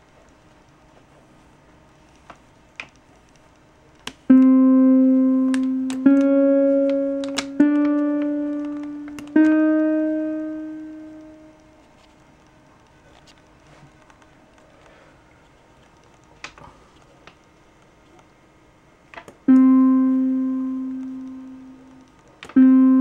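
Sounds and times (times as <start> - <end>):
rising electronic notes: 4.3 - 11.7.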